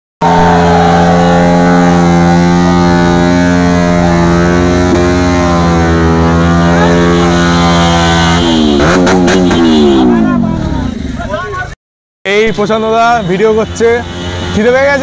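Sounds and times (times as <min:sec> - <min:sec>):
motorcycle engine at high revs: 0:00.2 - 0:11.1.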